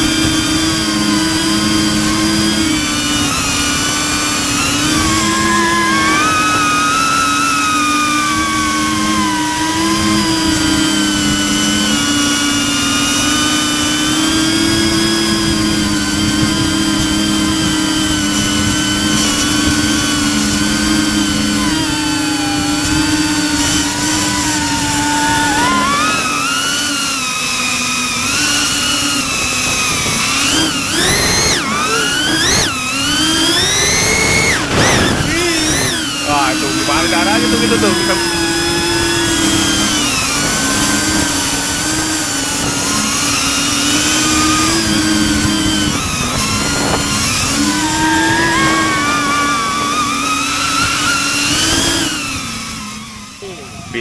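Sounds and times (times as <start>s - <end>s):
drone motors whining: 0.0s - 54.0s.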